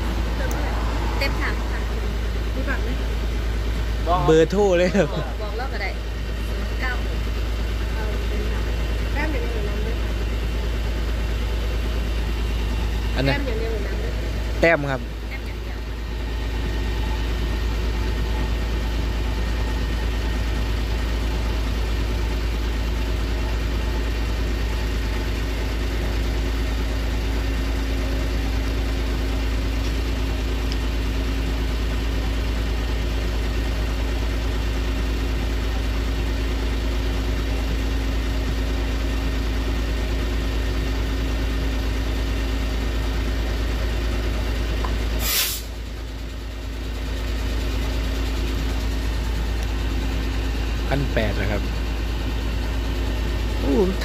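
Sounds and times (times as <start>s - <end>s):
loud burst of noise: 0.0s - 4.1s
engine idling: 0.0s - 54.0s.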